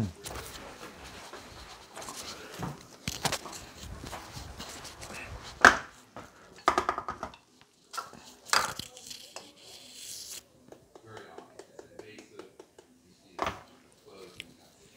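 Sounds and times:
rustling of things moved: 0.1 - 6.6.

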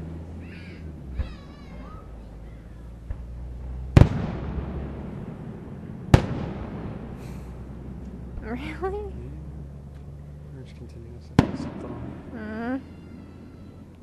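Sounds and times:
distant fireworks booms: 0.8 - 10.2, 11.2 - 13.9
faint fireworks pops: 3.0 - 5.4, 6.0 - 8.5, 11.4 - 12.3.

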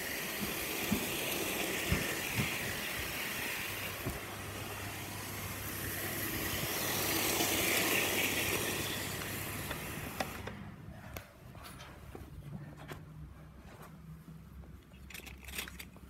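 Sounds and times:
model train whirring on track: 0.0 - 10.6.

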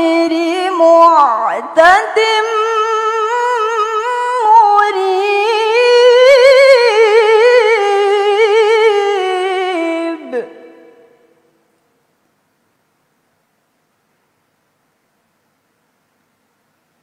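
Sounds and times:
woman chanting melodically: 0.0 - 11.5.

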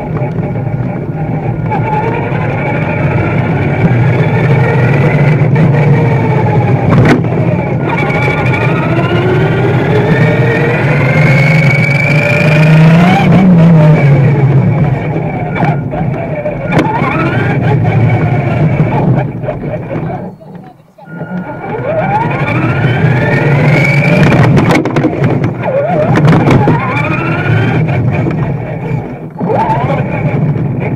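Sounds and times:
tyres rumbling on asphalt: 0.0 - 30.9
toy car motor whining: 0.5 - 30.9.

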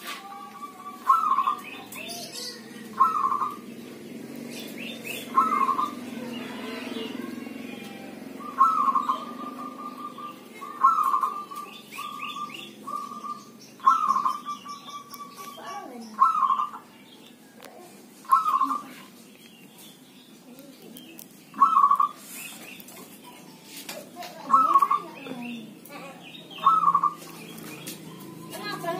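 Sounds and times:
dove cooing: 0.0 - 16.9, 18.2 - 19.1, 21.6 - 22.2, 24.4 - 28.9
small birds chirping: 0.0 - 28.9.

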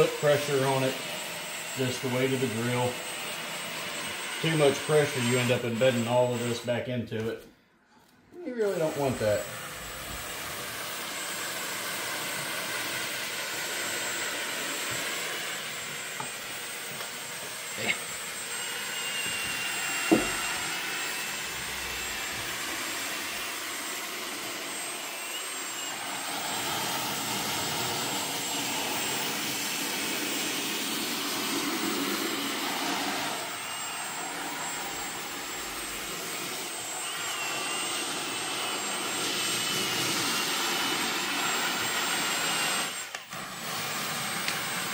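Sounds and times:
drill motor whine: 0.0 - 7.0, 8.5 - 44.9
brush scrubbing upholstery: 19.3 - 42.5.

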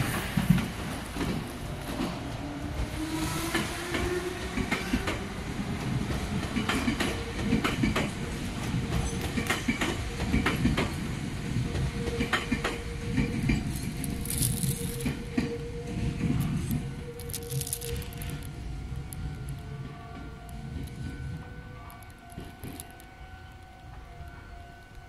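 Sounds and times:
train low hum: 0.0 - 25.0
wheels clicking over rail joints: 3.5 - 23.6.

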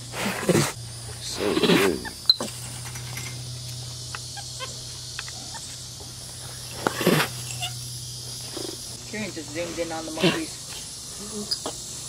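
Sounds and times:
tiger chuffing snort: 0.0 - 2.2
steady low hum: 0.0 - 12.0.

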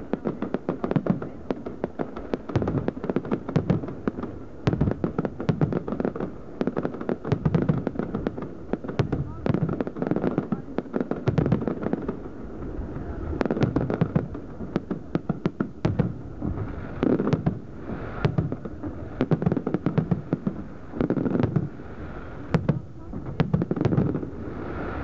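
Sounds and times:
fireworks bangs and crackles: 0.0 - 25.0
people's voices: 11.8 - 15.2, 23.0 - 23.6.

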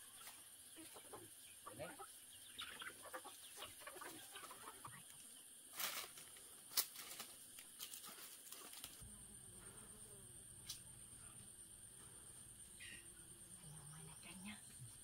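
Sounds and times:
chickens clucking: 0.0 - 5.6.

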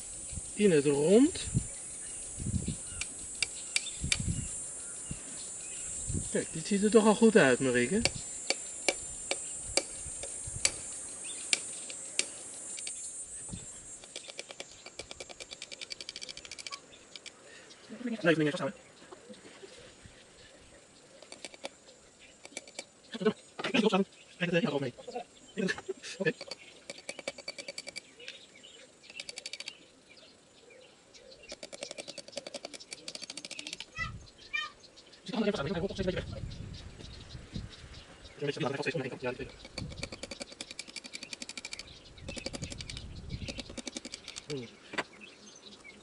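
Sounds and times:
faint bird chirps: 0.0 - 46.0
light clicks: 21.2 - 21.8.

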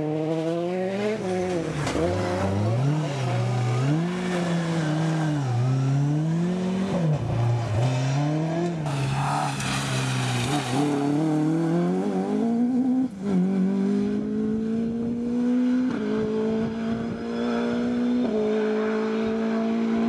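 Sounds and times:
rally car engines revving: 0.0 - 20.0
tyres hissing on wet road: 8.9 - 11.2.

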